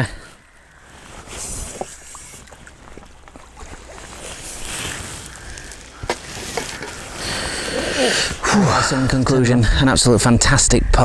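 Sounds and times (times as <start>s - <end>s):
water splashing and trickling: 0.6s - 8.4s.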